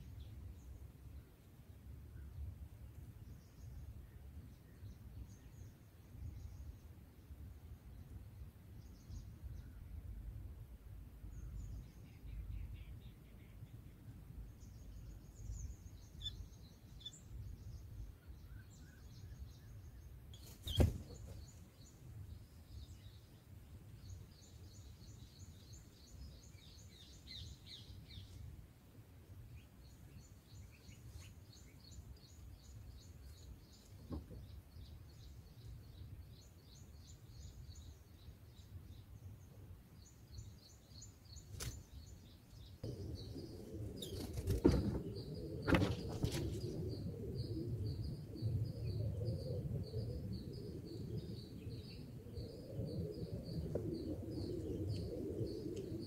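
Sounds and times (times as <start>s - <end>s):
low rumbling noise: 42.8s - 56.0s.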